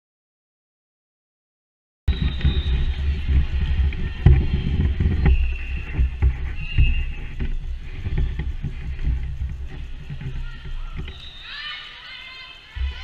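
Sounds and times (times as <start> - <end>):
ball knocks and thumps: 2.1 - 11.2
low gym rumble: 2.1 - 13.0.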